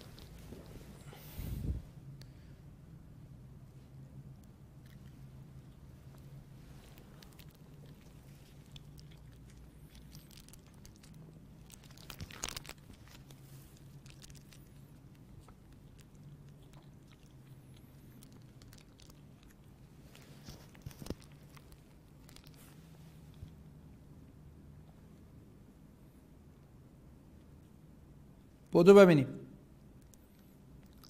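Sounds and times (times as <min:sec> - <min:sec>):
clicks and rustles: 0:06.1 - 0:23.6.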